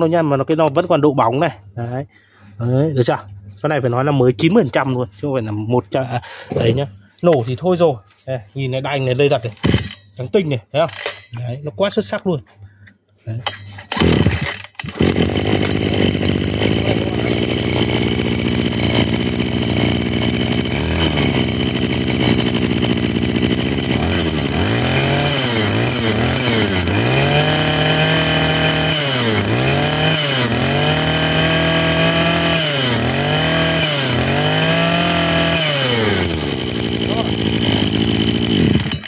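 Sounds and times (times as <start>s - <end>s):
brush cutter engine idling and revving: 9.6s - 10.0s, 13.5s - 39.0s.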